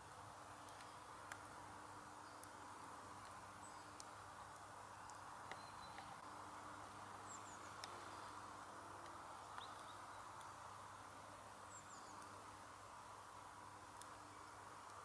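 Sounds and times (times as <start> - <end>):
faint steady hiss: 0.0 - 15.0
small clicks: 0.6 - 1.5, 2.3 - 2.6, 5.0 - 6.2, 7.6 - 8.0.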